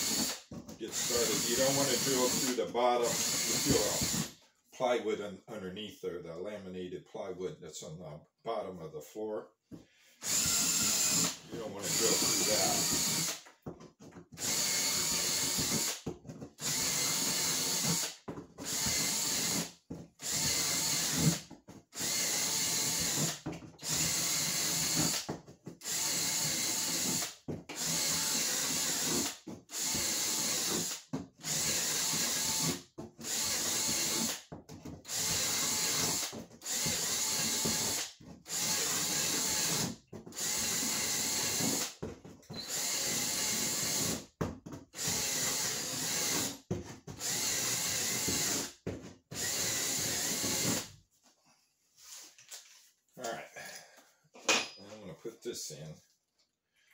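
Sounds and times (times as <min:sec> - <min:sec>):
cordless drill boring into plywood: 0:00.0 - 0:04.3, 0:10.2 - 0:13.5, 0:14.3 - 0:16.0, 0:16.6 - 0:34.4, 0:35.0 - 0:44.2, 0:45.0 - 0:46.6, 0:47.2 - 0:50.9.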